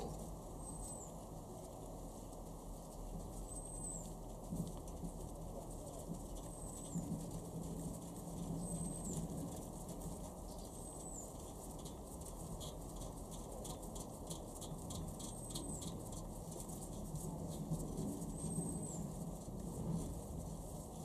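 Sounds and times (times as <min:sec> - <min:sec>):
stud ticking and rubbing in thread: 0:00.0 - 0:21.0
faint high chirp: 0:00.6 - 0:01.3, 0:03.4 - 0:04.2.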